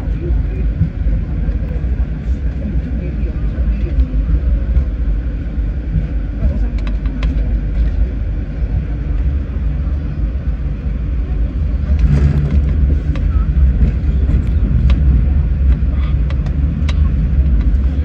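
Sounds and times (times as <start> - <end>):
light rail car rumbling on track: 0.0 - 18.0
sharp track clicks: 11.9 - 17.8.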